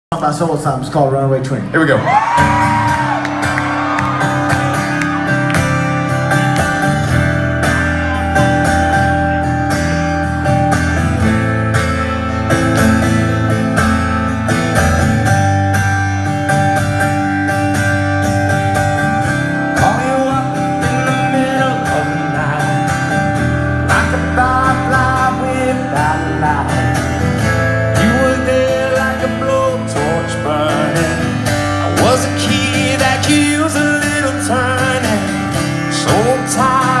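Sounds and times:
acoustic guitar strumming: 2.3s - 37.0s
man singing: 19.6s - 37.0s.

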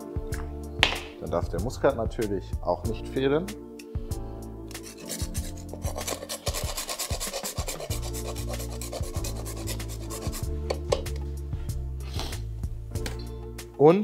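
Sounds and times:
nutmeg rasping on grater: 4.8s - 10.5s.

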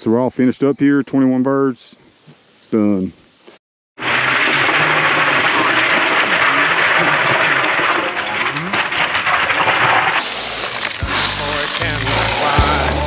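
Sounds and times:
ice cubes clattering into cooler: 4.1s - 13.0s.

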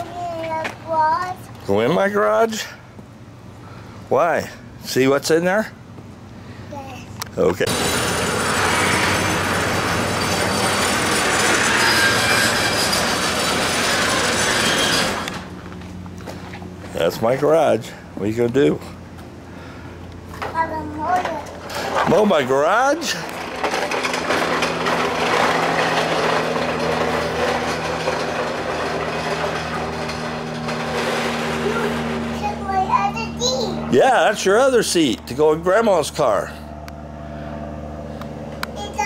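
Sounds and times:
steady low hum: 0.0s - 39.0s
garage door opener rattling: 7.7s - 15.6s, 20.4s - 32.9s.

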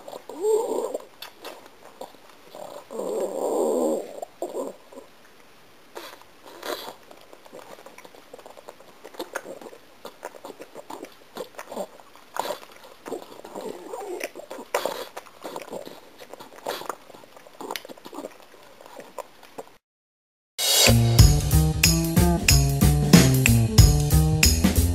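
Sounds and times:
dog chewing gum smacking: 0.0s - 2.9s, 6.0s - 19.8s.

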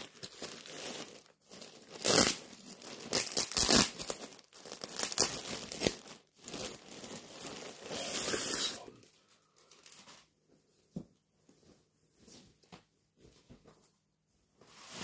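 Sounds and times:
plastic bag crinkling and tearing: 0.0s - 10.3s.

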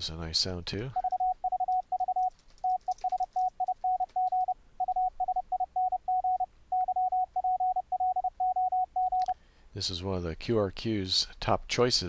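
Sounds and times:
morse code tone: 1.0s - 9.3s.

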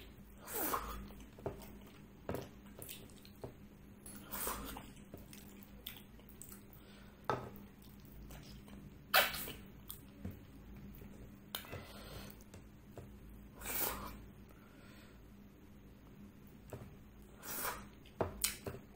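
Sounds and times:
wet chewing: 0.8s - 6.8s
bites and mouth sounds: 7.8s - 10.2s, 17.7s - 18.7s.

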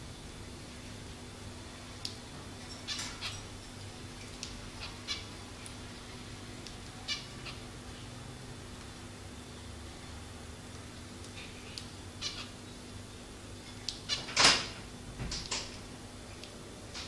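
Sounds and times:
finches calling: 7.0s - 7.7s, 11.6s - 12.8s.

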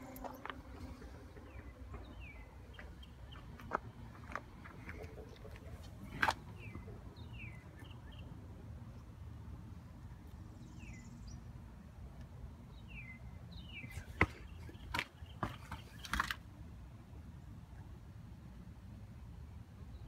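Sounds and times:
small birds chirping: 0.0s - 8.4s, 10.1s - 11.5s, 12.7s - 16.2s
low steady rumble: 0.0s - 12.0s.

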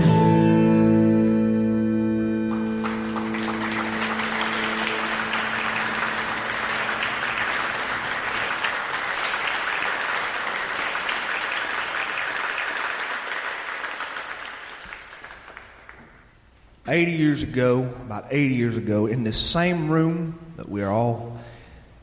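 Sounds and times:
audience applauding: 2.4s - 16.4s.

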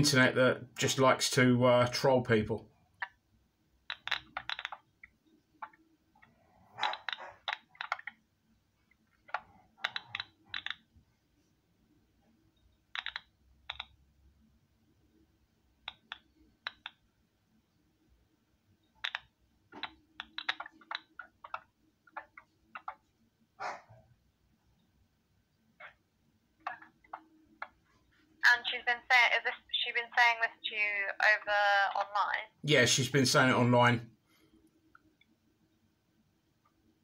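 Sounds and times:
keyboard typing over speakerphone: 3.8s - 10.9s, 12.8s - 14.0s, 15.8s - 17.1s, 18.9s - 23.2s, 26.6s - 27.8s.

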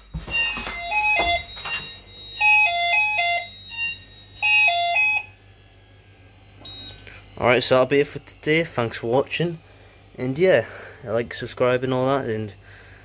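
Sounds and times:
fire alarm two-tone sounder: 0.0s - 5.4s, 6.6s - 7.0s.

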